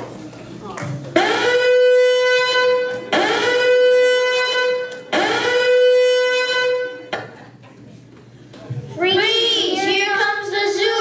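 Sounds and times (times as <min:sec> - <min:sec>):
instrument playing long notes: 0:01.2 - 0:07.2.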